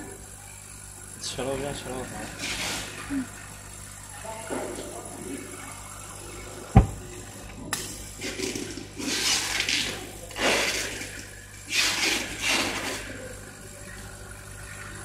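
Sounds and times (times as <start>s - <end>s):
sharp thump: 6.8s - 7.0s.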